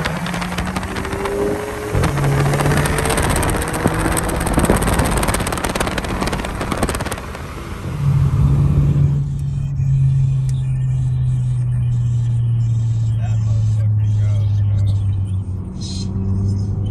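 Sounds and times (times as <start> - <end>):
wind buffeting on microphone: 0.0 - 7.8
car engine drone: 0.0 - 16.9
wind and road rush: 0.0 - 16.9.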